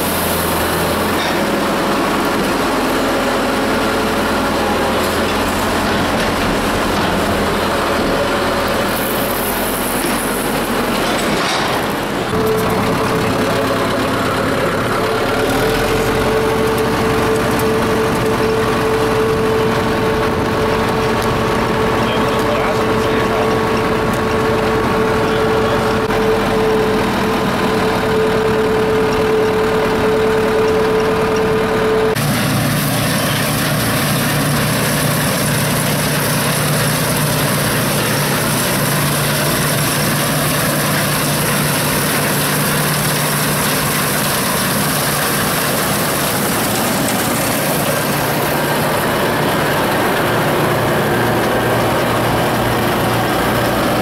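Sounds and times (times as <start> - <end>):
combine harvester running: 0.0 - 54.0
vehicle engine droning in cab: 11.7 - 54.0.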